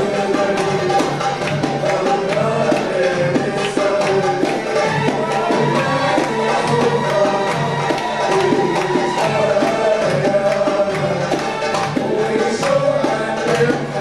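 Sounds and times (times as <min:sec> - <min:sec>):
hand drums: 0:00.0 - 0:14.0.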